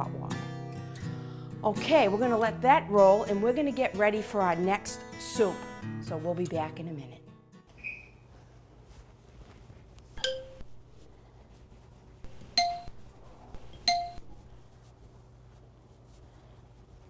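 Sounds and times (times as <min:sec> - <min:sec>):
ceramic plate clinking: 0:10.2 - 0:10.6.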